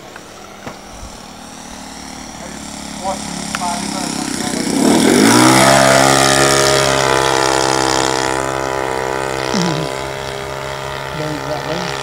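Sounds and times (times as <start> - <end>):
model plane engine flying past: 0.0 - 12.0.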